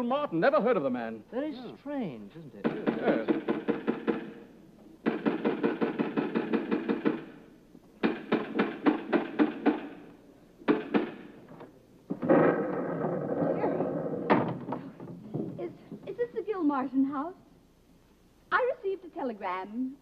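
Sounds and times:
rapid knocking on wooden door: 2.6 - 7.4, 8.0 - 10.0, 10.6 - 11.4.

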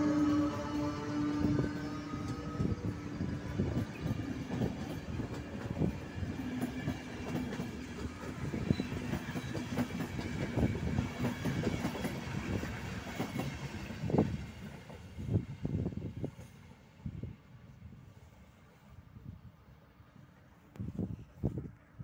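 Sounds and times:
train wheels clickety-clack: 0.0 - 16.8.

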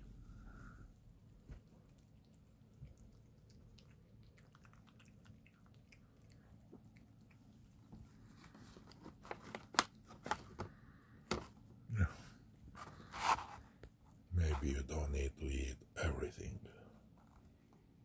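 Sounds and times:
kittens chewing clicks: 1.6 - 7.9.

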